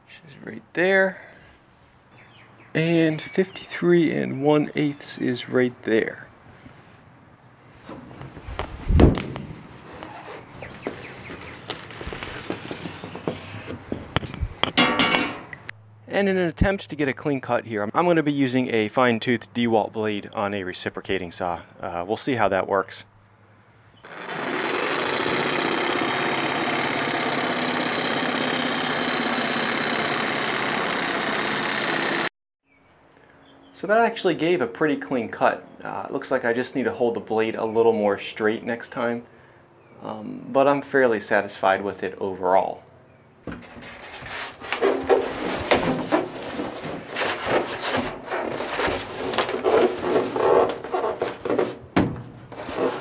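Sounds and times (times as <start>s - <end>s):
reciprocating saw cutting foam board: 9.9s - 13.8s, 24.0s - 32.3s, 43.6s - 51.8s, 52.5s - 53.0s
foam board scraping on metal: 11.8s - 13.7s, 43.6s - 53.0s.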